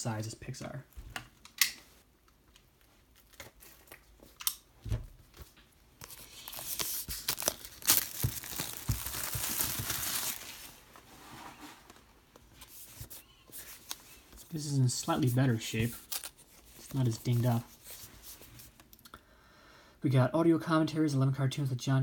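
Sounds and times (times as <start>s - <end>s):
plastic shrink-wrap crackling: 6.0s - 10.8s.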